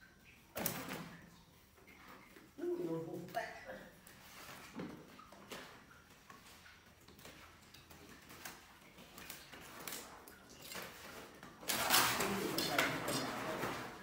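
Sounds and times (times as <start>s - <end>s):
leaves rustling and crinkling: 4.0s - 14.0s.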